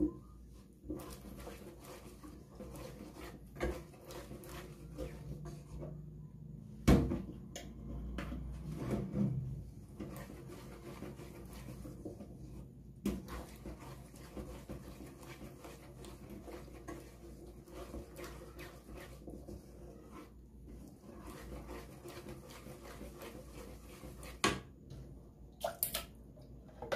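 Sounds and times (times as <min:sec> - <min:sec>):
spoon scraping in pot: 0:00.9 - 0:06.1, 0:07.8 - 0:24.5.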